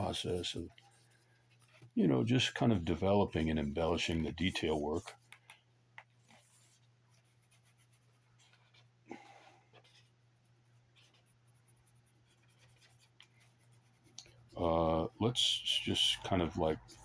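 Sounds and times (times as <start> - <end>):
pen scratching on paper: 0.7 - 2.0, 6.0 - 8.9, 10.8 - 14.2.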